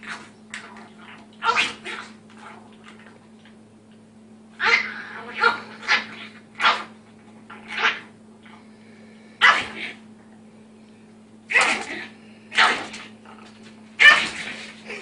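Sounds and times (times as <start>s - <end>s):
dog barking: 9.4s - 9.8s, 14.0s - 14.4s.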